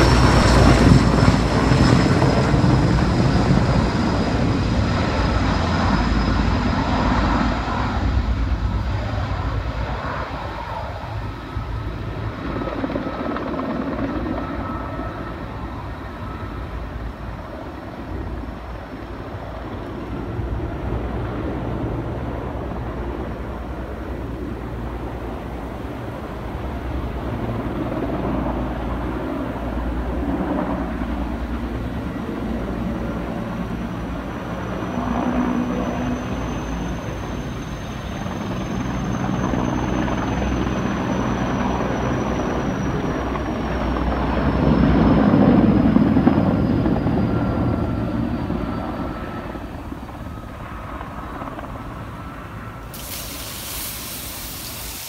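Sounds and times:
helicopter flying overhead: 0.0s - 55.0s.

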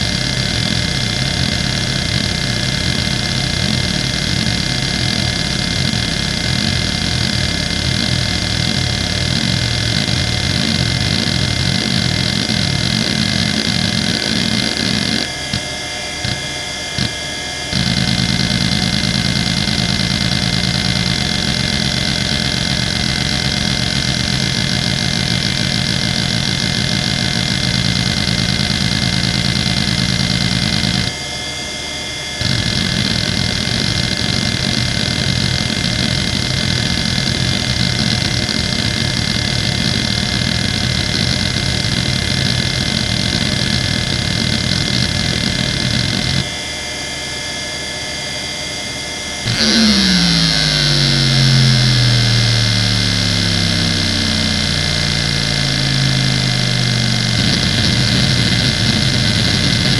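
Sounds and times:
hard drive head seeking chatter: 0.0s - 31.2s, 32.4s - 46.6s, 49.5s - 59.9s
spinning drive hum: 0.0s - 48.4s, 49.3s - 59.9s.

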